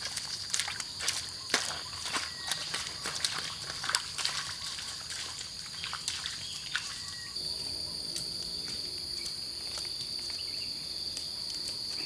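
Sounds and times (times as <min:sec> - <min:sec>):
barefoot footsteps on wet mud: 0:00.0 - 0:07.2.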